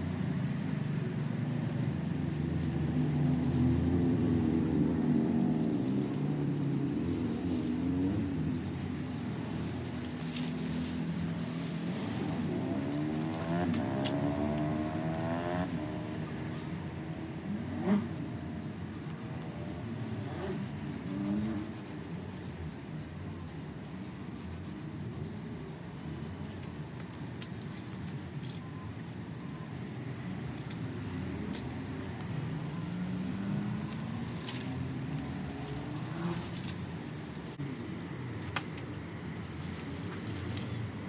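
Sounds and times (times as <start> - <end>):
vehicle engine humming: 0.0 - 41.0.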